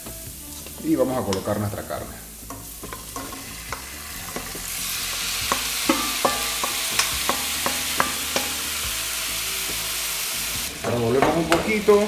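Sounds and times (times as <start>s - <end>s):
meat sizzling in frying pan: 0.0s - 12.0s
wooden spoon knocking on metal bowl: 2.5s - 8.6s.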